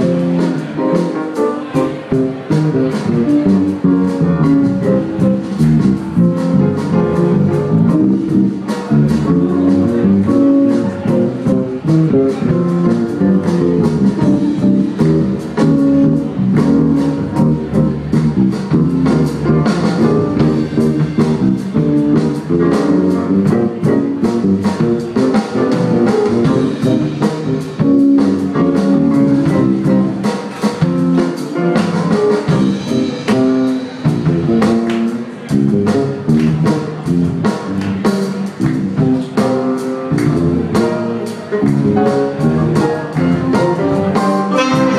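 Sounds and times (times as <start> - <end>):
drums keeping a steady beat: 0.0 - 44.9
electric bass: 0.0 - 44.9
baritone saxophone: 38.7 - 44.9.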